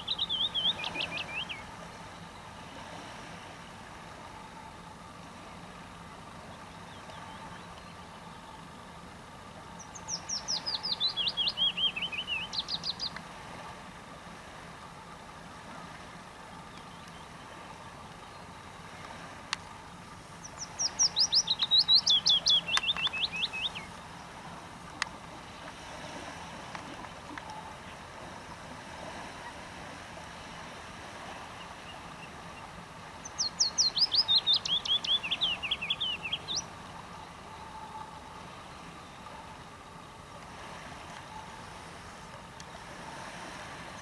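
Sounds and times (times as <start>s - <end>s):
small songbird singing: 0.0s - 2.6s, 9.7s - 13.2s, 20.3s - 25.0s, 31.6s - 38.0s.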